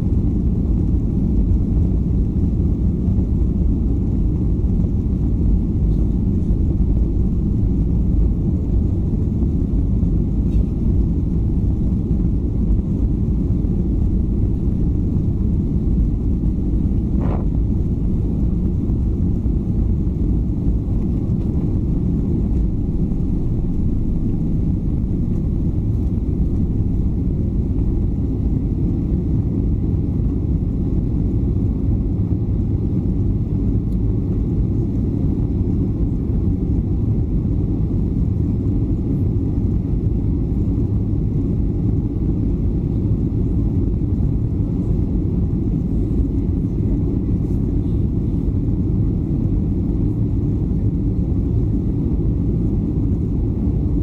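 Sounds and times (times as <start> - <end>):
jet engines rumbling: 0.0 - 54.0
airflow: 3.8 - 29.5.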